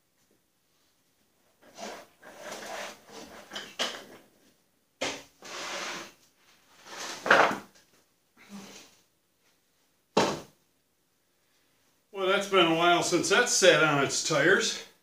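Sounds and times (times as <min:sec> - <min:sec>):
scraping and rubbing: 0:01.5 - 0:04.3, 0:05.4 - 0:07.6.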